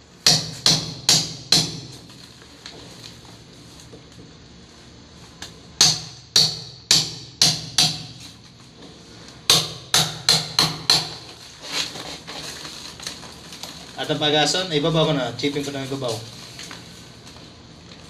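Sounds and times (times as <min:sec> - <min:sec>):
hammer and chisel chipping concrete: 0:09.5 - 0:11.4.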